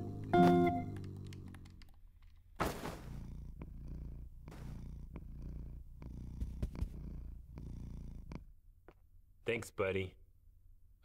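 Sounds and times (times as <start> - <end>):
cat purring: 0.0 - 2.0, 2.7 - 8.6.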